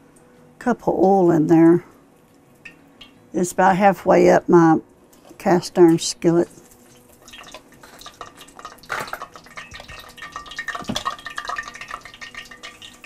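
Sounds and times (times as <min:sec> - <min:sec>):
frying oil crackling: 0:05.1 - 0:13.0
mixing bowl knocks: 0:08.9 - 0:11.6.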